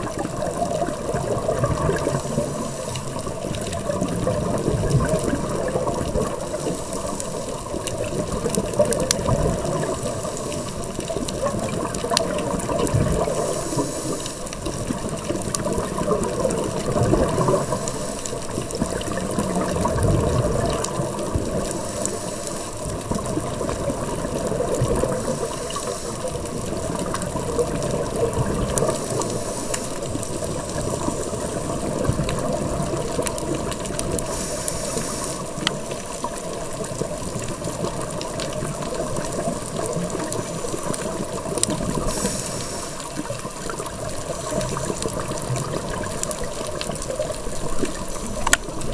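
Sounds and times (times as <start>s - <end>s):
exhaled bubbles rumbling underwater: 0.0s - 48.9s
regulator inhalation hiss: 13.2s - 14.5s, 17.5s - 18.5s, 21.7s - 22.8s, 25.1s - 26.4s, 29.0s - 31.5s, 34.2s - 35.8s, 41.9s - 43.3s.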